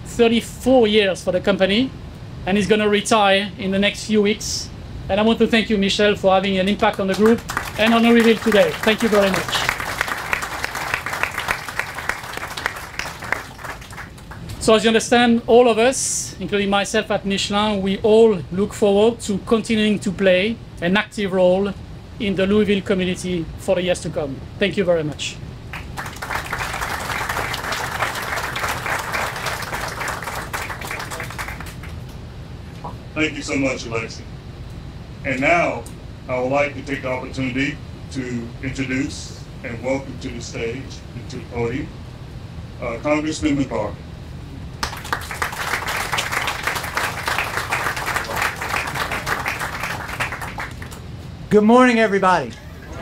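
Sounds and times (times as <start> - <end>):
audience applauding: 6.9 - 14.5, 25.7 - 32.0, 44.8 - 51.0.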